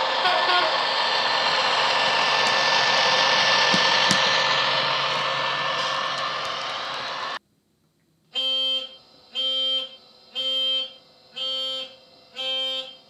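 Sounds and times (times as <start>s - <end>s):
horn note: 0.0s - 7.4s
model diesel engine drone: 0.0s - 7.4s.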